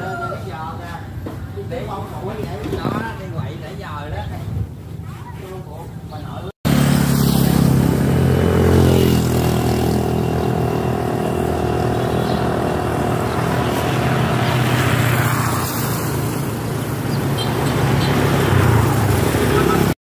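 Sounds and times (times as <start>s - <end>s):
engine running: 6.7s - 19.9s.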